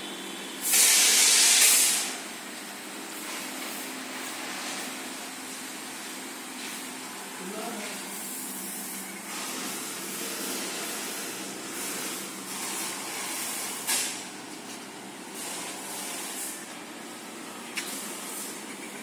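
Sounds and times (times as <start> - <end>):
mechanical hum: 0.0 - 19.0
even hiss: 0.6 - 2.2.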